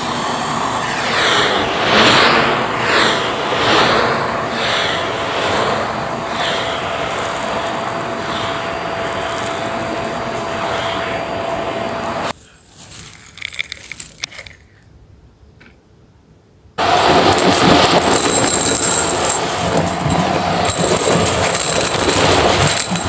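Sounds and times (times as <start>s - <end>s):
vacuum cleaner whining: 0.0s - 12.4s, 16.8s - 23.0s
debris rattling out of dust bin: 16.8s - 23.0s.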